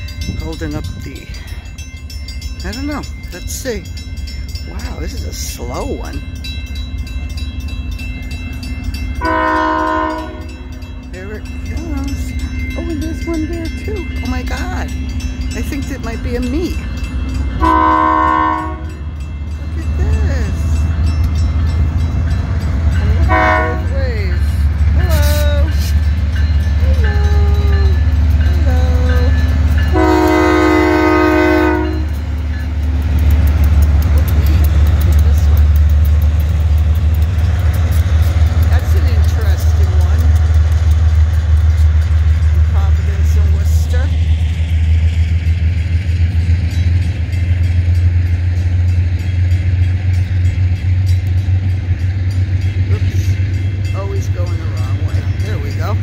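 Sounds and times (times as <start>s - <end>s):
diesel locomotives rumbling: 0.0s - 56.0s
train wheels on rails: 0.0s - 56.0s
train air horn: 9.2s - 10.6s, 17.6s - 18.9s, 23.3s - 23.9s, 29.9s - 32.1s.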